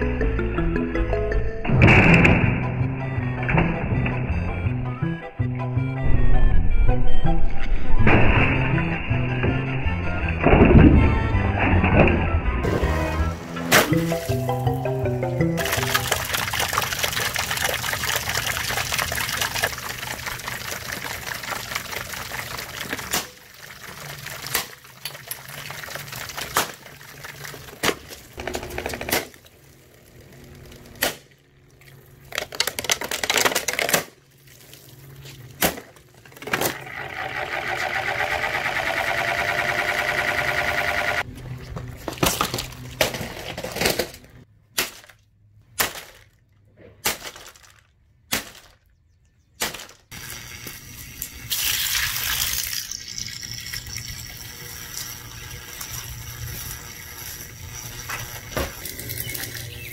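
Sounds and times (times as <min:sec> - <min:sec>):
motor whine: 0:36.7 - 0:41.6, 0:50.1 - 0:51.6.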